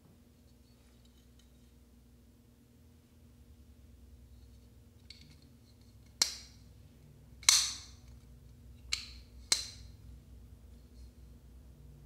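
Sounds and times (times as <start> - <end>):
knife blade snapping open and shut: 7.4 - 7.9.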